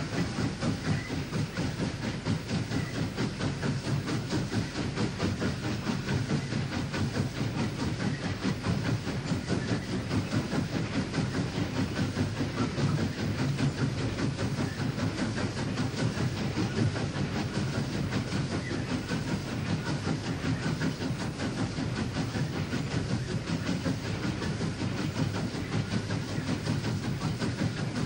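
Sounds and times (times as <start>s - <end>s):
steam locomotive chuffing: 0.0s - 28.0s.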